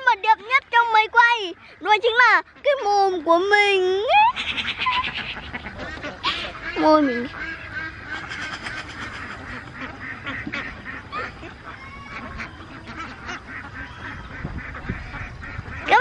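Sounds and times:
waterfowl calling: 4.1 - 16.0.

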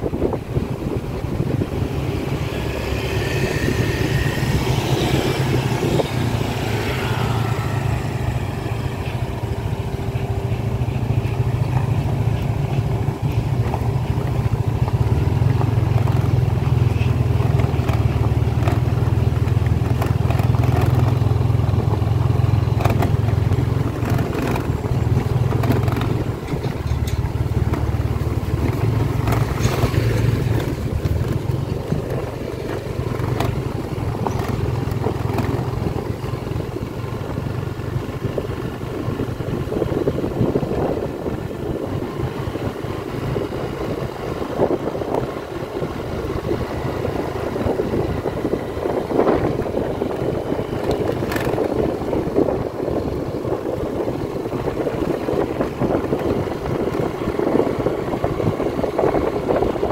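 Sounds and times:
motorcycle engine rumbling: 0.0 - 59.9
gravel clicks and rattles: 11.2 - 36.4.

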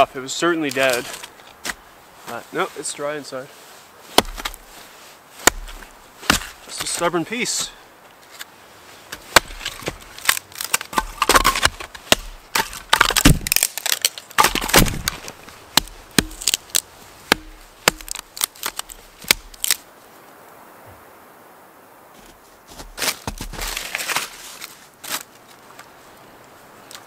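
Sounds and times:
axe chopping wood: 4.2 - 4.6, 5.4 - 7.8, 9.1 - 19.8
wood cracking and tearing apart: 4.2 - 4.7, 5.4 - 7.0, 9.1 - 19.8, 23.0 - 25.3.

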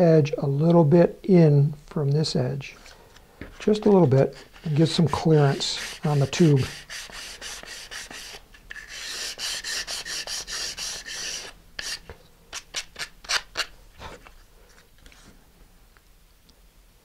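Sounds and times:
sandpaper rubbing wood: 4.2 - 13.5.

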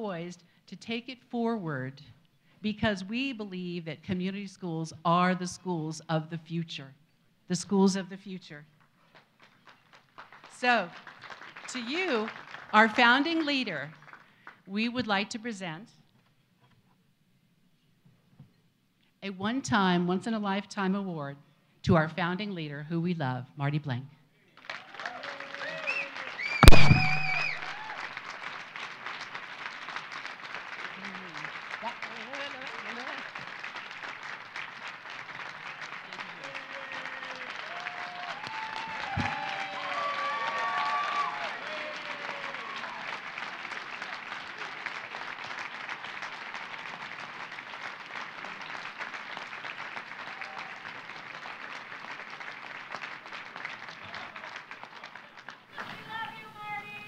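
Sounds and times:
audience applauding: 9.1 - 13.0, 24.6 - 56.9
people whooping: 24.7 - 28.2, 36.1 - 45.2, 50.2 - 51.1, 54.0 - 54.5
loud thump: 26.6 - 27.6.

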